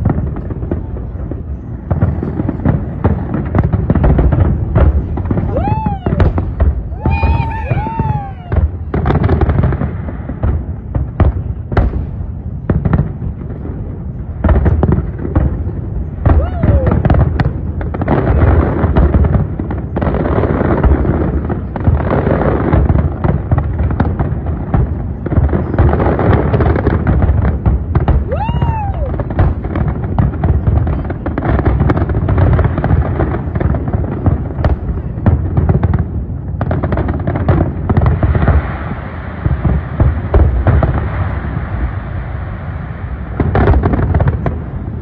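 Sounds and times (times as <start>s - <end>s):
fireworks bangs and crackles: 0.0s - 45.0s
firework whistle: 5.2s - 9.2s, 28.0s - 29.6s.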